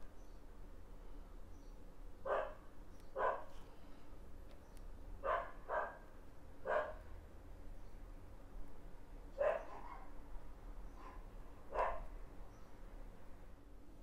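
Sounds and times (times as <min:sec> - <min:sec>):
dog barking: 0:02.2 - 0:02.6, 0:03.2 - 0:03.6, 0:05.2 - 0:06.0, 0:06.6 - 0:07.0, 0:09.4 - 0:10.2, 0:11.0 - 0:12.1.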